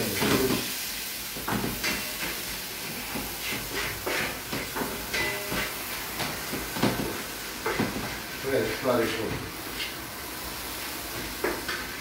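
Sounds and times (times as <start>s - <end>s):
onion sizzling in pan: 0.0s - 12.0s
spatula scraping pan: 1.7s - 8.9s, 9.7s - 10.0s.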